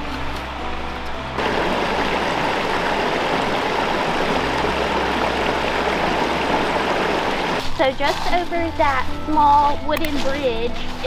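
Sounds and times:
creek rushing over stones: 1.4s - 7.7s.

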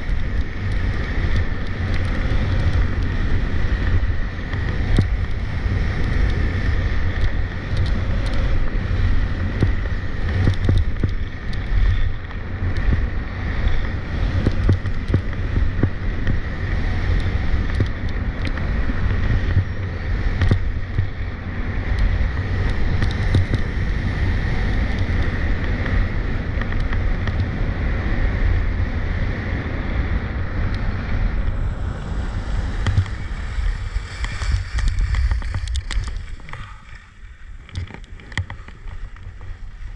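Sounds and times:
wind buffeting microphone: 0.0s - 39.9s
skis scraping on icy snow: 31.6s - 39.9s.

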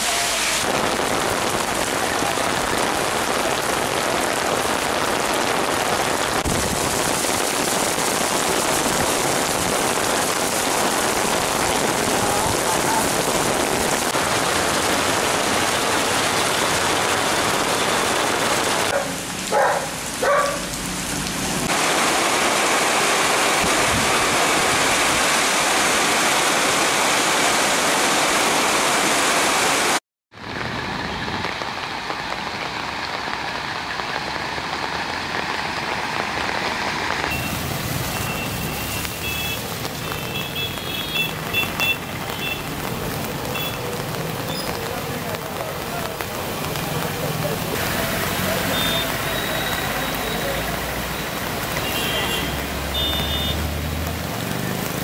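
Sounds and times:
heavy rain pouring: 0.0s - 55.0s.

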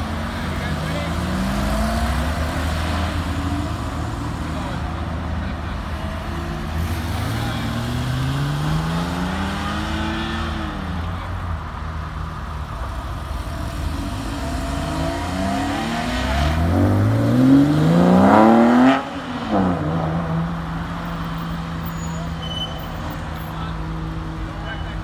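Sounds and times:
cars pulling away: 0.0s - 25.0s
car engine revving hard: 13.4s - 20.6s.

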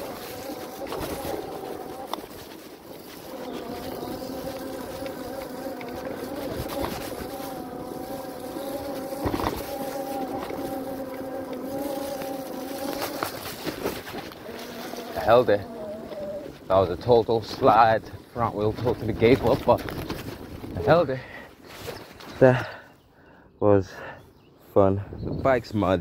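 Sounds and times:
electric motor whining: 0.0s - 16.7s
tyres on muddy trail: 0.0s - 26.0s.

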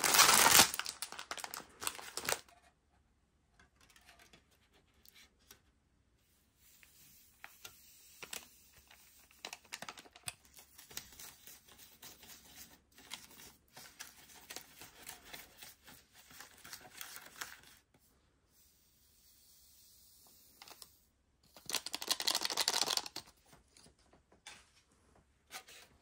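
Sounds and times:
foil packet rustling: 0.0s - 2.5s, 8.2s - 11.2s, 21.6s - 23.2s.

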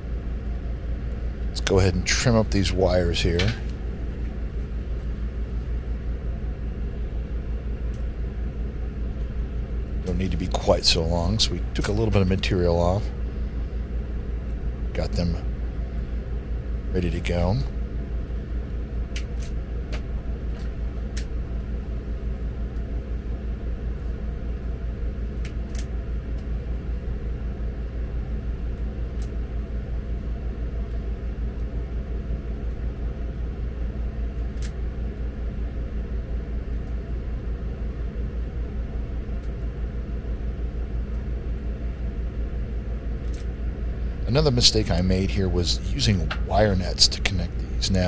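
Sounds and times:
pulsing low machine hum: 0.0s - 48.0s
wire stripper clicks: 19.1s - 21.4s, 25.4s - 26.5s, 34.4s - 34.8s.

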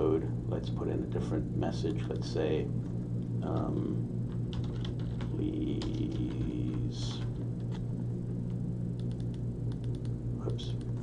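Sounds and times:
low electrical hum: 0.0s - 11.0s
keyboard keystroke clicks: 9.0s - 10.9s.

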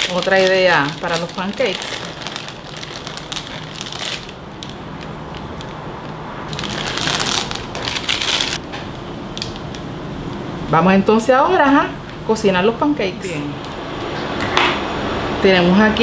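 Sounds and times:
foil bag crinkling: 0.0s - 5.8s, 6.5s - 8.6s.

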